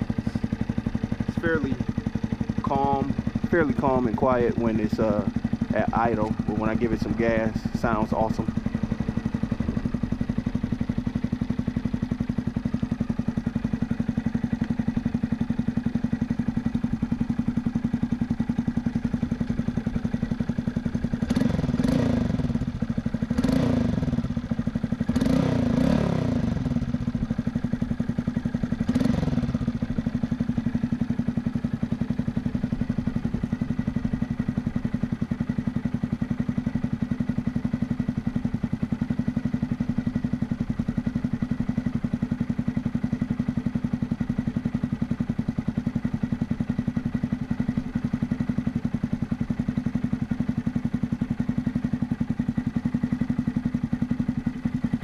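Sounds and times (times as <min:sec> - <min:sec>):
engine throttle blips: 0:00.0 - 0:13.6, 0:18.9 - 0:27.9
motorcycle engine idling: 0:00.0 - 0:55.0.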